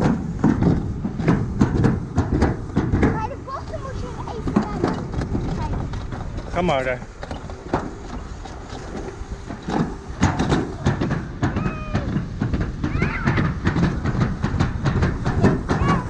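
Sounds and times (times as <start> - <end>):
distant voices: 0.0 - 16.0
children's high-pitched calls: 11.5 - 12.2, 12.8 - 13.5.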